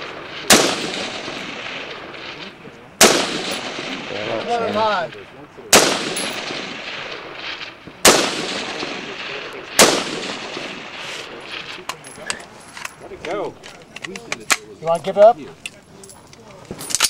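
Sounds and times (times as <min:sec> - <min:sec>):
gunshot echo off hills: 0:00.0 - 0:12.0
rifle shots: 0:00.0 - 0:12.0.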